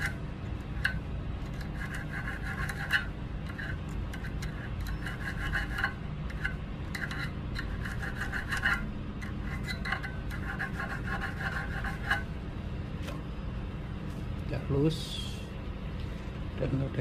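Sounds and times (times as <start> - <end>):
hand file rasping on metal: 1.5 - 12.3.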